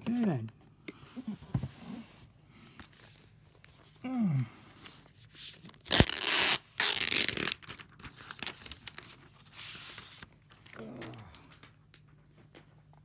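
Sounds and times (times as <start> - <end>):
packaging rustling and tearing: 5.6 - 10.7.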